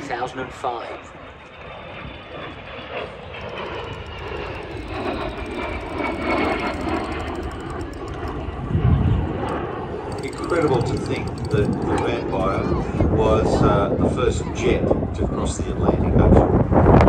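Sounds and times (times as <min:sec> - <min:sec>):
jet engine roar: 0:00.6 - 0:10.1.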